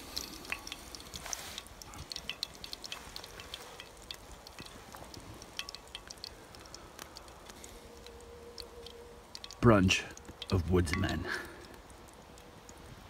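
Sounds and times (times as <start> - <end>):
hot oil popping and crackling: 0.0 - 13.0.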